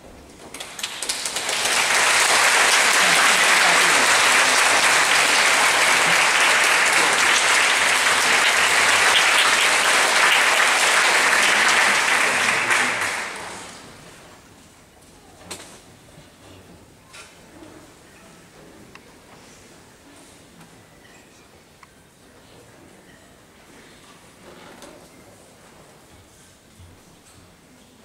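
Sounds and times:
audience applause: 0.5 - 13.9.

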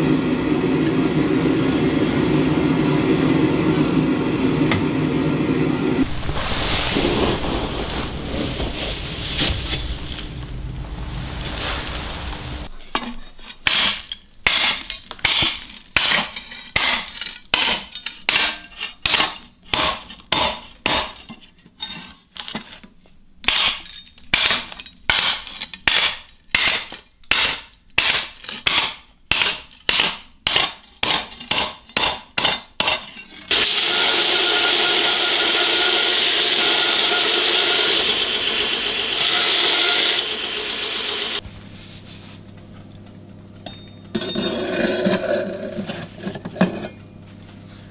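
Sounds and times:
steady rushing noise: 5.8 - 12.7
belt grinder grinding: 33.5 - 41.4.

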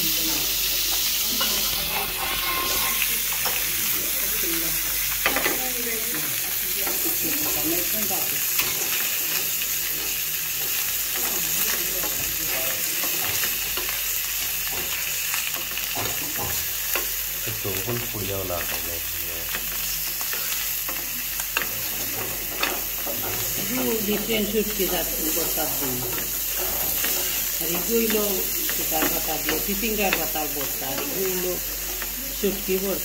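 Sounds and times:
fish sizzling in oil: 0.0 - 33.0
spatula scraping pan: 1.4 - 3.8, 19.8 - 32.5.

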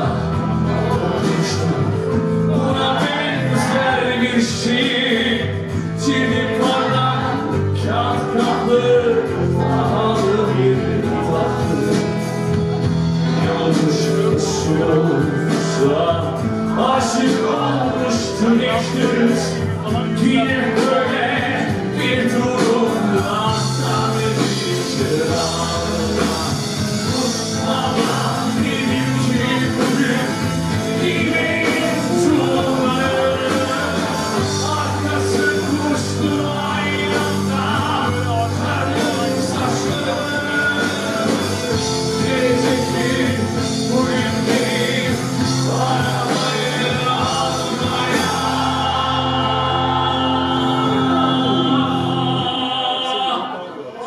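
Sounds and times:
bass guitar: 0.0 - 53.2
drums: 0.0 - 53.3
electric guitar: 0.0 - 53.6
rock band playing live: 0.0 - 53.7
person singing: 0.0 - 54.0.

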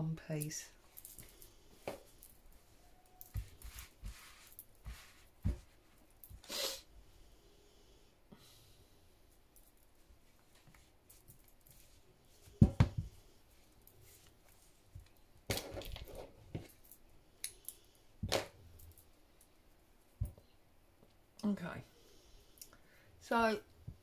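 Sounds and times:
fabric and thread rustling: 0.3 - 6.5, 9.3 - 17.2.

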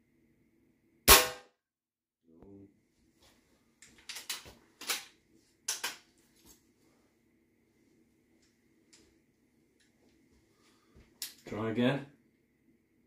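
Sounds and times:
air rifle shot: 1.1 - 1.5.

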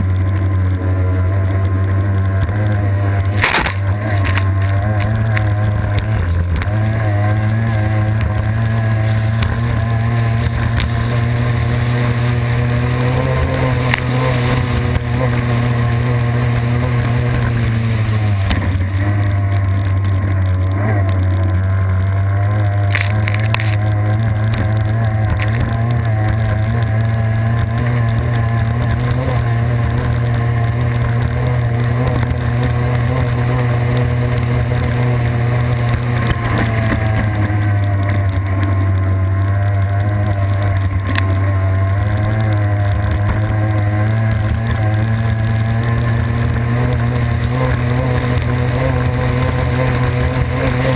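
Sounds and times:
boat engine running hard: 0.0 - 50.9
wind: 0.0 - 50.9
rushing water: 11.0 - 20.6.

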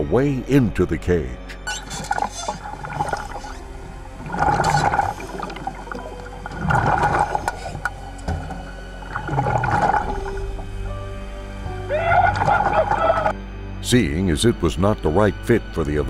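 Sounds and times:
background music: 0.0 - 16.0
underwater churning and bubbling: 1.6 - 13.4.

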